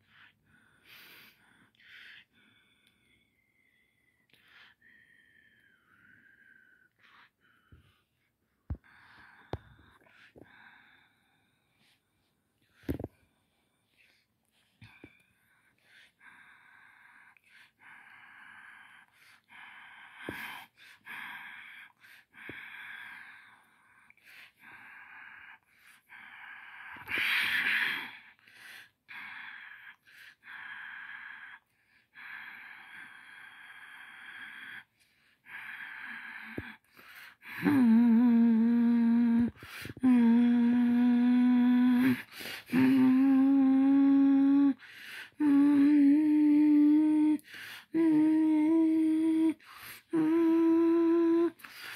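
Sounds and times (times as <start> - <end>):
person breathy whispering: 0.0 - 12.0, 12.6 - 51.9
person humming: 37.4 - 51.8.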